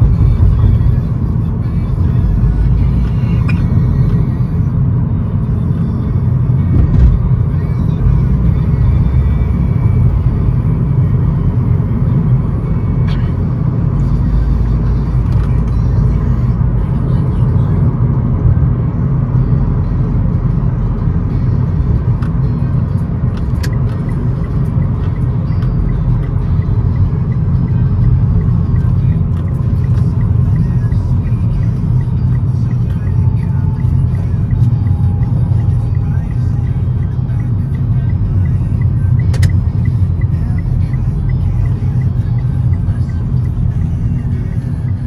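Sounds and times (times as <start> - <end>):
car engine and road noise: 0.0 - 45.0
vehicle rumble: 0.0 - 45.0
sharp click: 39.3 - 39.6.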